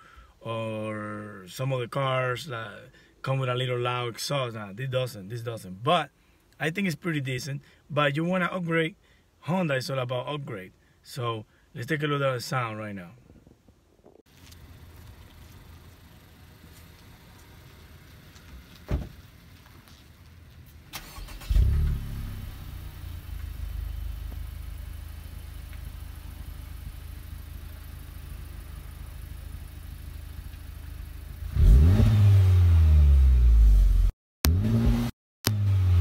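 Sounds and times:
car engine idling and revving: 14.3s - 36.0s.

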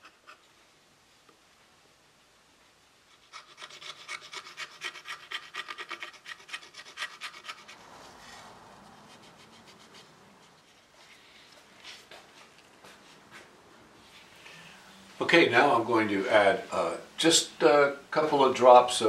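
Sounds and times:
knife blade scraping wood: 3.2s - 10.9s.

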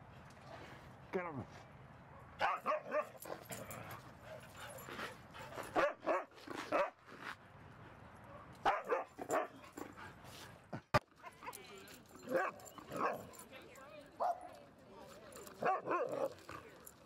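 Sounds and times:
dogs barking and yipping: 2.2s - 7.0s, 8.3s - 10.0s, 12.0s - 13.5s, 15.4s - 16.5s.

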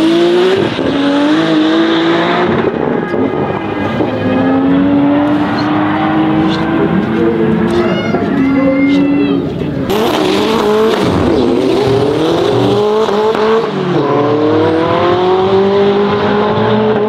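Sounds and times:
car engine accelerating: 0.0s - 17.0s.

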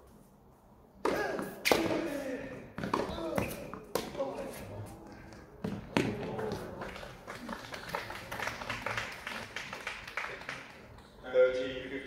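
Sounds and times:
tennis ball struck: 1.0s - 2.1s
crowd applause: 6.5s - 10.8s.

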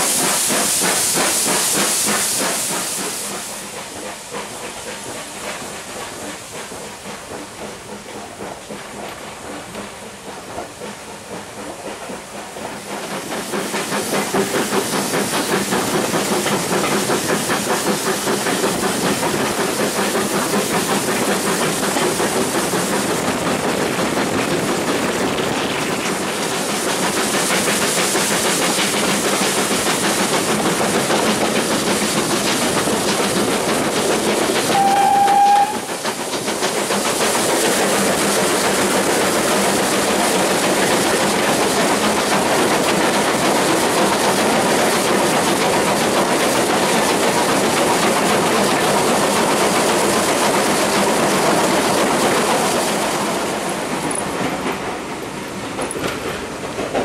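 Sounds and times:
steam train running: 0.0s - 57.0s
steam whistle toot: 34.7s - 35.9s.

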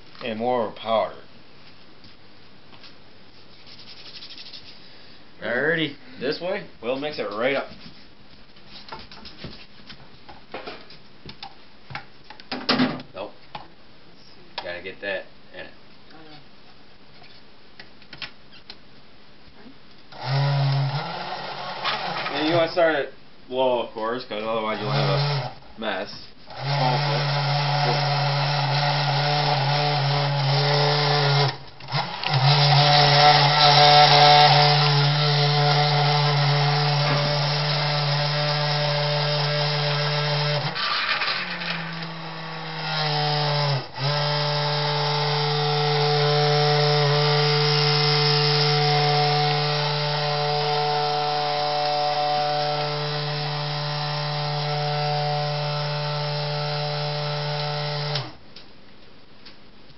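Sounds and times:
milkshake mixer motor humming: 20.1s - 22.5s, 26.5s - 40.8s.

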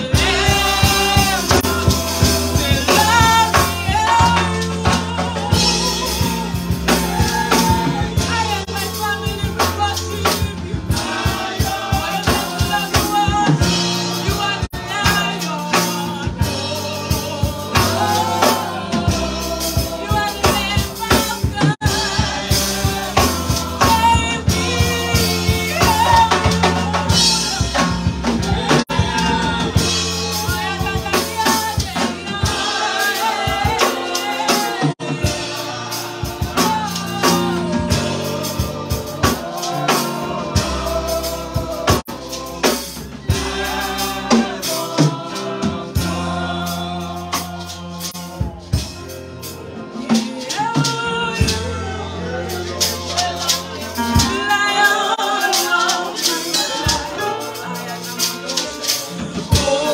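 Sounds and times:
drum kit and bass: 0.0s - 59.9s
woman singing into a microphone: 20.0s - 22.0s, 28.5s - 35.4s, 50.0s - 59.9s.

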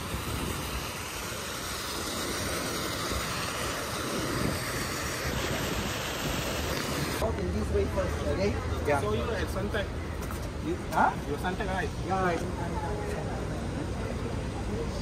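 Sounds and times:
rushing hiss: 0.0s - 7.2s.

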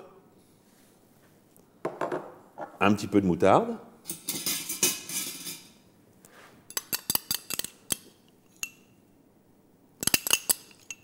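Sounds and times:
spoon clinking against glass: 6.7s - 9.0s, 10.0s - 11.0s.

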